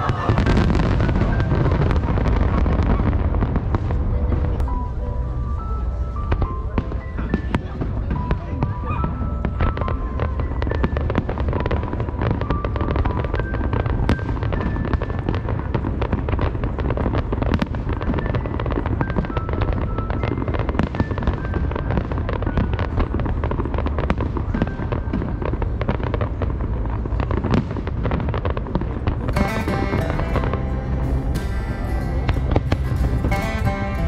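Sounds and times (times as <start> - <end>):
deep rumble: 0.0 - 7.0, 29.0 - 34.0
fireworks bangs and crackles: 0.0 - 34.0.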